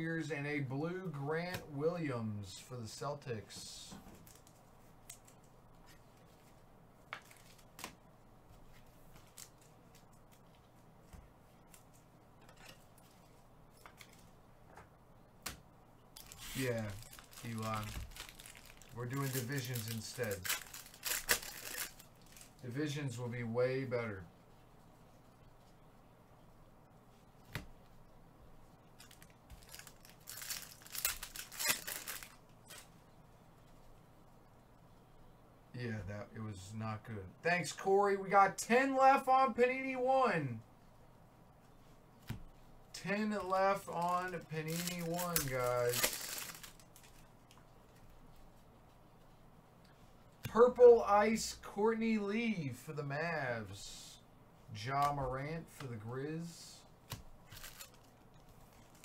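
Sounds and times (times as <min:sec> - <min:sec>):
low steady hum: 0:00.0 - 0:59.0
cards and foil packs rustling: 0:03.6 - 0:07.9, 0:08.8 - 0:10.7, 0:16.2 - 0:22.6, 0:29.0 - 0:32.9, 0:43.0 - 0:48.1, 0:57.4 - 0:59.0.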